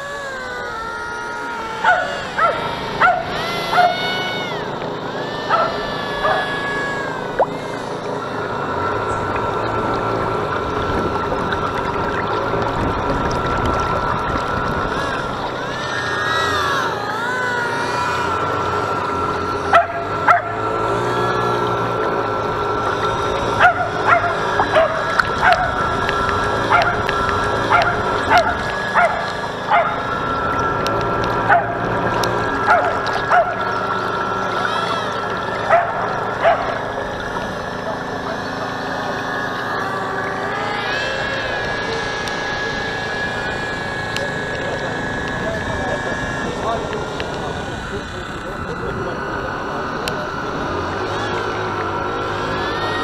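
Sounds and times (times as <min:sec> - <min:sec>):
model boat motor whine: 0:00.0 - 0:53.0
water rushing along hull: 0:00.0 - 0:53.0
wavering gliding whine: 0:00.0 - 0:53.0
small dog yipping: 0:01.8 - 0:04.6, 0:05.2 - 0:07.5, 0:35.6 - 0:36.8
wind on microphone: 0:09.1 - 0:15.6.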